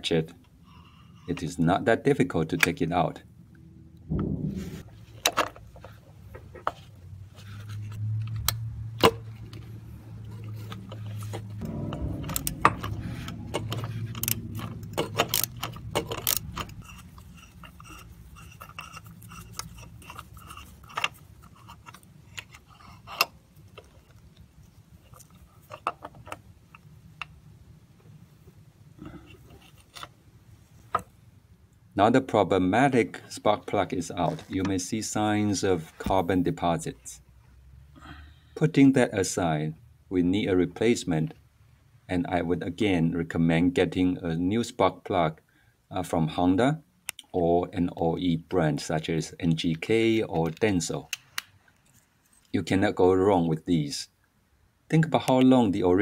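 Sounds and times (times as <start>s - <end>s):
low hum: 3.3s - 5.2s, 9.4s - 18.8s.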